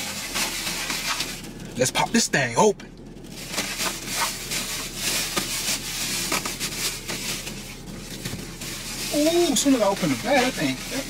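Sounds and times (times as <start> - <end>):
paper bag rustling: 3.2 - 11.0.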